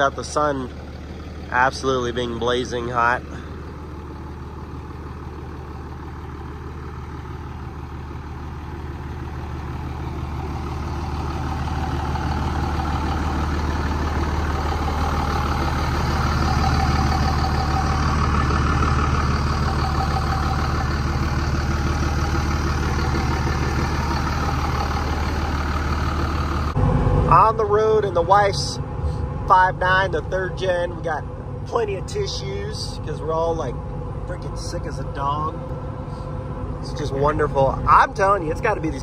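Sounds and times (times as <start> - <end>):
diesel engine idling: 0.0 - 39.0.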